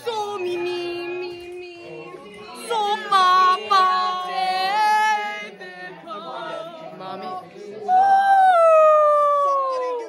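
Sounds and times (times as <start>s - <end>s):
girls singing unaccompanied: 0.0s - 7.6s.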